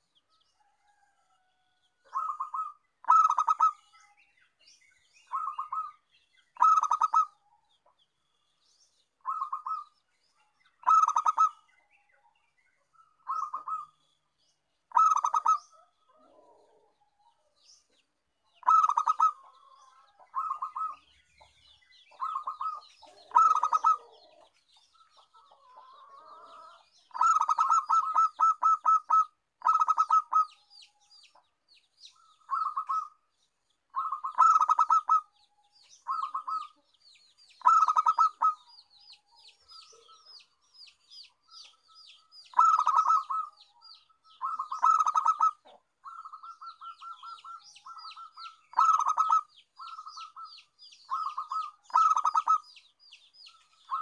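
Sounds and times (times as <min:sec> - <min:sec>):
dove cooing: 0:02.1 - 0:04.0, 0:06.6 - 0:07.4, 0:09.2 - 0:10.0, 0:10.8 - 0:11.7, 0:13.2 - 0:14.0, 0:14.9 - 0:17.0, 0:18.6 - 0:21.0, 0:22.1 - 0:30.6, 0:32.2 - 0:33.2, 0:33.9 - 0:35.3, 0:36.0 - 0:36.8, 0:37.6 - 0:38.7, 0:42.5 - 0:43.6, 0:44.3 - 0:52.7
high bird chirping: 0:02.1 - 0:08.0, 0:08.8 - 0:16.8, 0:17.6 - 0:54.0.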